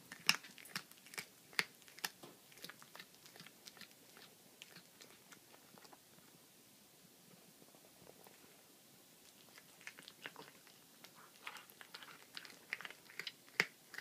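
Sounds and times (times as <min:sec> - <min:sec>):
cat crunching bone: 0:00.1 - 0:06.0, 0:09.2 - 0:14.0.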